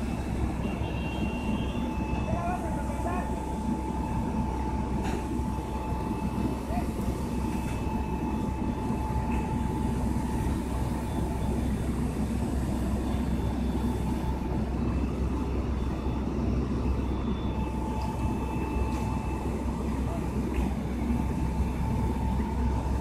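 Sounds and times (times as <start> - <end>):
faint high whine: 0.0 - 23.0
fire truck engines idling: 0.0 - 23.0.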